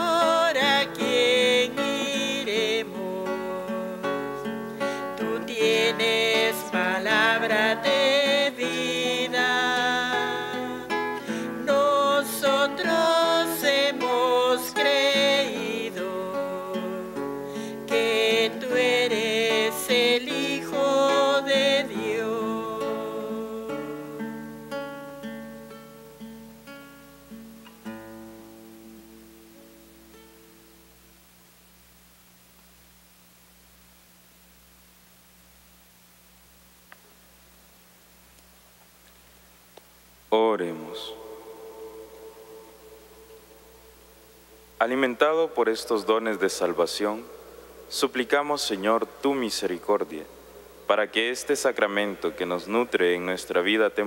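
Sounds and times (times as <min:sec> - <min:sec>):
person singing a hymn: 0:00.0 - 0:24.6, 0:40.3 - 0:54.0
acoustic guitar: 0:00.0 - 0:33.7, 0:36.4 - 0:54.0.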